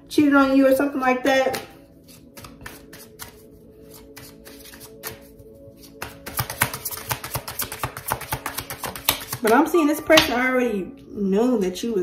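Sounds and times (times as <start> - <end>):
soft background music: 0.0 - 12.0
cards shuffling clicks: 2.0 - 5.3.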